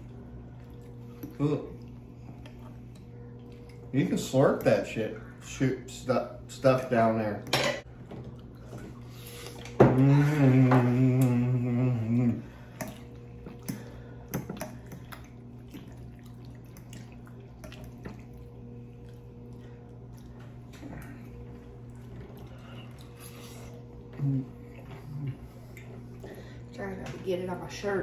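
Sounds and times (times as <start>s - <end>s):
quiet eating sounds: 0.0s - 27.8s
person humming with mouth full: 9.8s - 12.5s.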